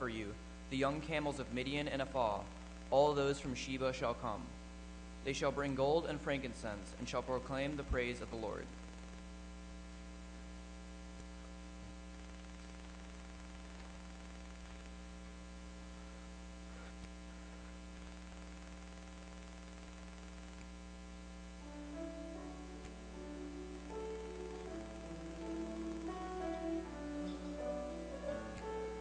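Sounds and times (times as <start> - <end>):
electrical mains hum: 0.0 - 29.0
piano playing: 21.6 - 29.0.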